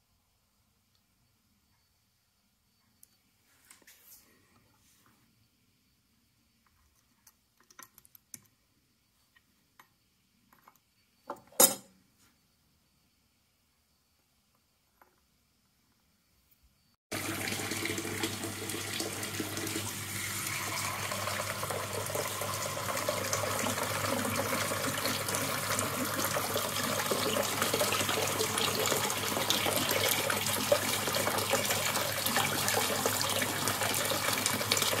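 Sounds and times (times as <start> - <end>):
water pouring through measuring cup: 17.1 - 35.0.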